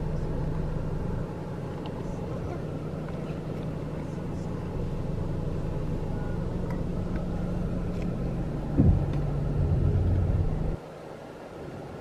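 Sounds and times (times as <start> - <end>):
car engine running: 0.0 - 10.8.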